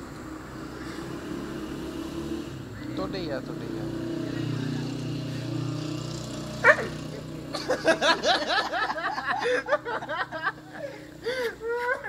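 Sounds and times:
person giggling: 7.5s - 12.0s.

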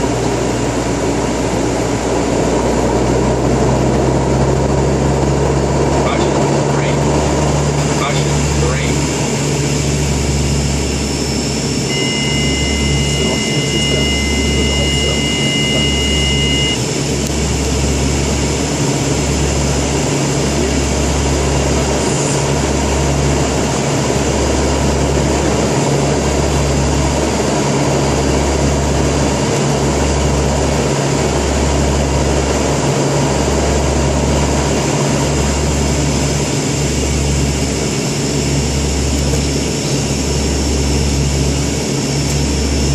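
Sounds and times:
turboprop aircraft drone: 0.0s - 42.9s
high two-pitch tone: 11.1s - 16.8s.

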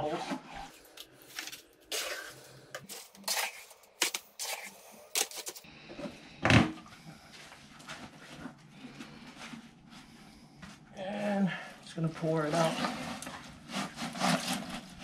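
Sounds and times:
trowel scraping wet concrete: 1.4s - 5.6s, 13.7s - 15.0s.

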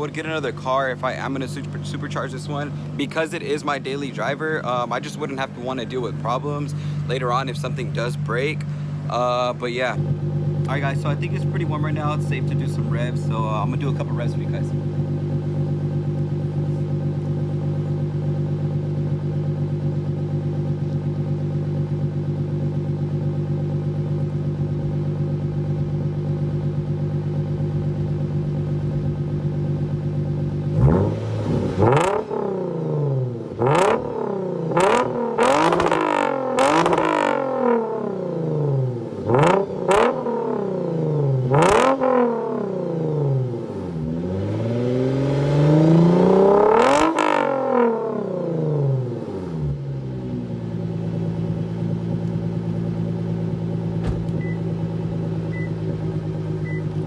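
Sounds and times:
car engine idling: 0.0s - 57.0s
engine revving in quick blips: 30.7s - 38.0s, 38.8s - 49.8s.

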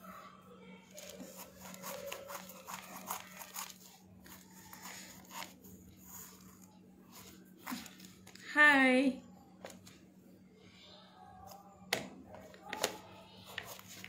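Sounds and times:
knife crunching through pumpkin: 1.0s - 5.6s.

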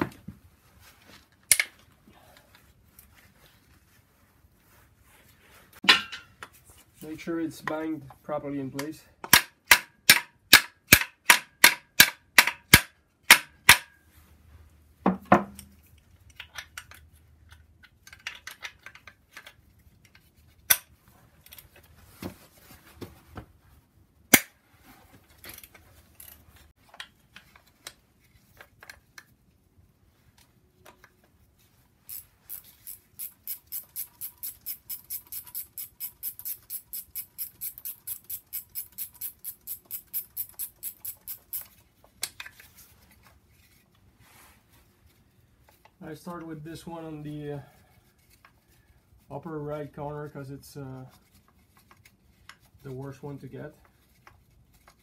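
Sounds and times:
tool handling: 5.8s - 7.8s
ratchet wrench clicking: 32.1s - 41.7s.

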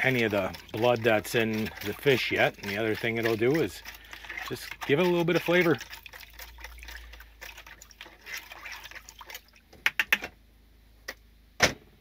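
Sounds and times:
water sloshing and trickling: 0.0s - 9.8s
sharp clicks or knocks: 9.7s - 10.4s.

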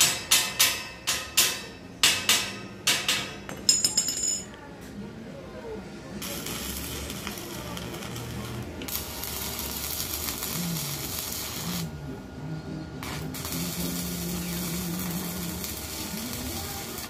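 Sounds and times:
welding arc crackling and hissing: 6.2s - 11.9s, 13.0s - 17.0s.

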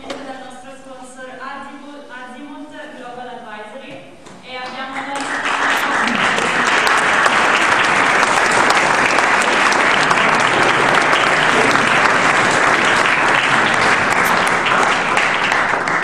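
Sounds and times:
audience applauding: 5.2s - 16.0s.

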